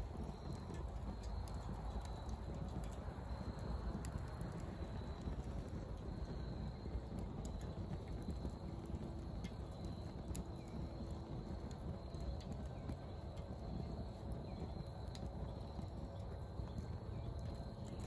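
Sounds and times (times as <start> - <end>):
flame rushing in a stove: 0.0 - 18.0.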